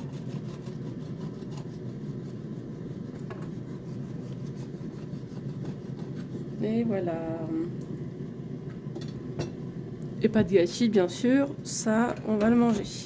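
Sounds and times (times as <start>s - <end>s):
bread knife sawing through cake: 0.0s - 6.6s
steady low hum: 0.0s - 13.0s.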